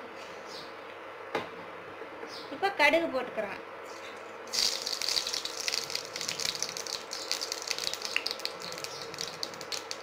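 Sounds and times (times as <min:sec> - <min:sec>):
seeds sizzling in hot oil: 0:04.5 - 0:10.0.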